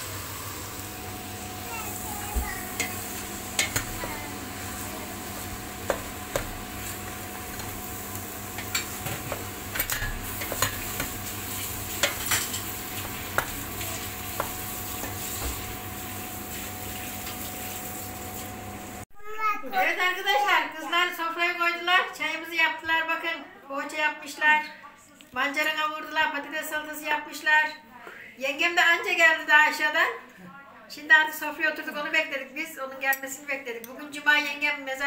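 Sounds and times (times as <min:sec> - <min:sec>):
vegetables sizzling in a pot: 0:00.0 - 0:19.0
spoon knocking against pot: 0:03.6 - 0:04.0, 0:05.8 - 0:06.6, 0:12.0 - 0:13.6.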